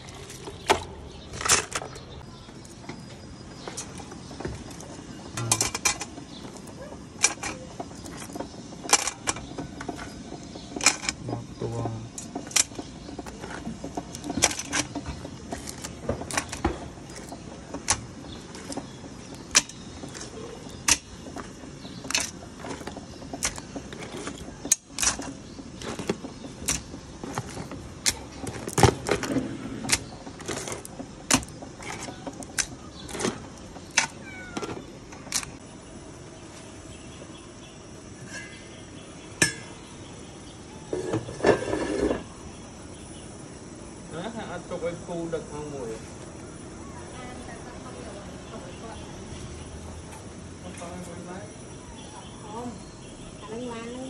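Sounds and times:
crab shells clacking against pot: 0:03.5 - 0:35.6.

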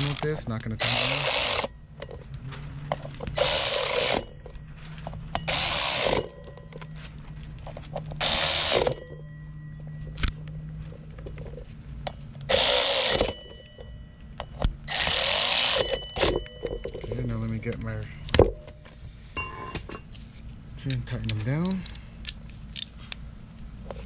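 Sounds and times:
power driver spinning bolts: 0:00.0 - 0:18.9.

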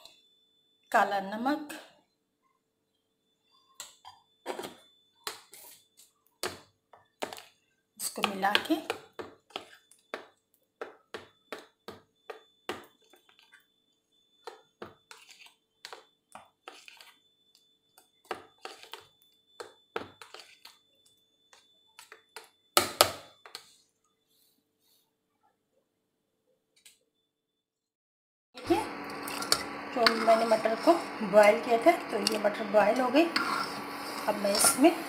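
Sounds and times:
spoon scraping bowl: 0:03.8 - 0:06.6, 0:07.2 - 0:10.4, 0:14.4 - 0:17.2, 0:18.2 - 0:20.8, 0:28.6 - 0:35.0.

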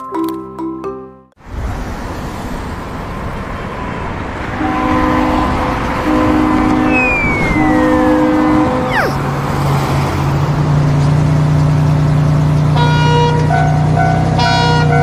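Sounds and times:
traffic noise: 0:01.4 - 0:15.0
truck engine drone: 0:01.5 - 0:15.0
falling whistle glides: 0:06.7 - 0:09.2.

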